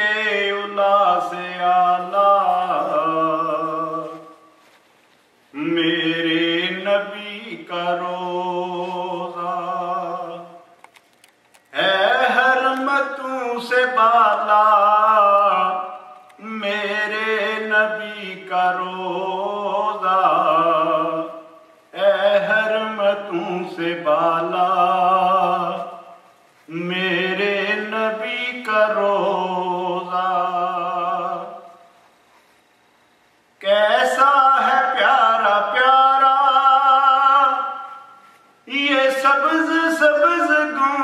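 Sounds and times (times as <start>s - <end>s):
man chanting unaccompanied: 11.8s - 26.1s, 33.6s - 38.1s.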